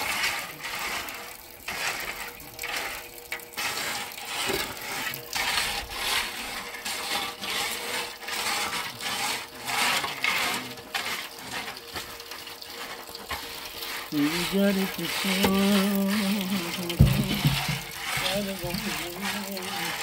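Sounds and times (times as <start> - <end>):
shovel scraping gravel: 0.0 - 20.0.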